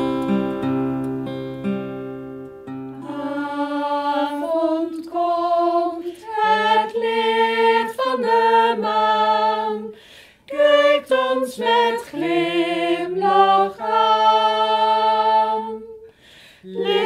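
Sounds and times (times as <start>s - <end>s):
acoustic guitar chord: 0.0s - 3.4s.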